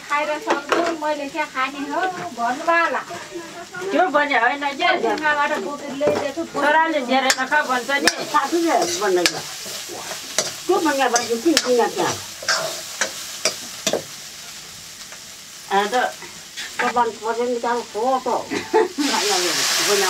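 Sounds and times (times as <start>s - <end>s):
food sizzling: 0.0s - 20.0s
metal ladle scraping wok: 6.0s - 14.2s, 16.2s - 17.2s.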